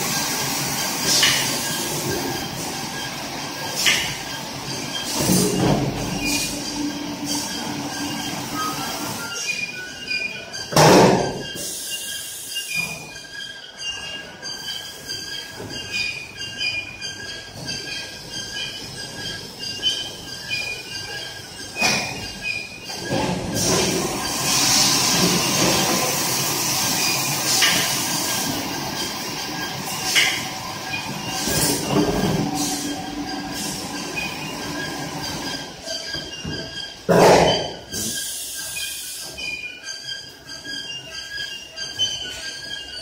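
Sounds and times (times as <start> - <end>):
high machine tones: 11.3 - 43.0.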